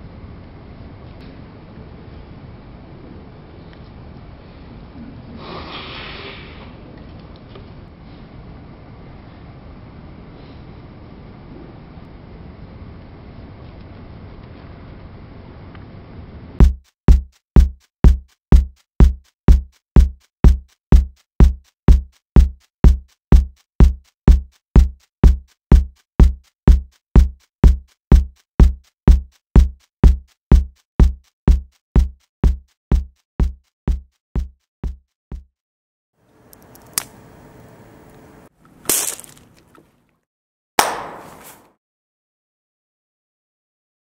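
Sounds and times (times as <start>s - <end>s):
electronic kick drum beat: 16.6s - 35.5s.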